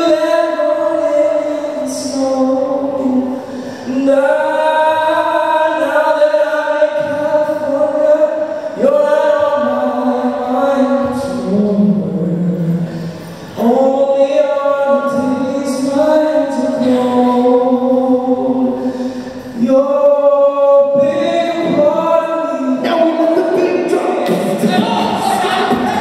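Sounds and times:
group singing a cappella: 24.3 - 26.0.

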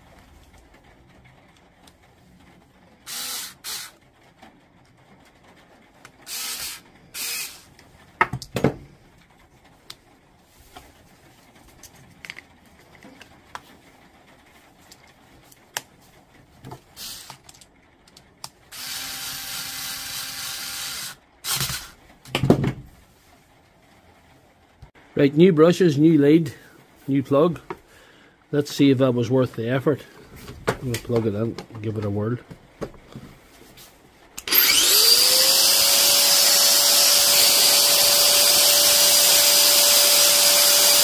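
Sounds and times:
cordless drill spinning: 3.0 - 4.0, 6.2 - 7.8, 17.0 - 17.4, 18.7 - 22.0, 34.4 - 41.0.

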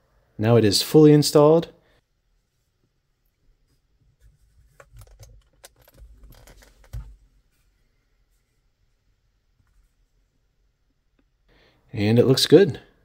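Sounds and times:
mirror plastic clicks and rubbing: 4.6 - 7.2.

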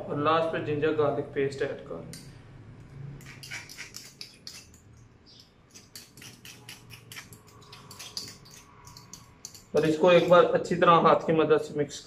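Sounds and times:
fork scraping ceramic bowl: 3.2 - 4.9, 5.7 - 10.4.

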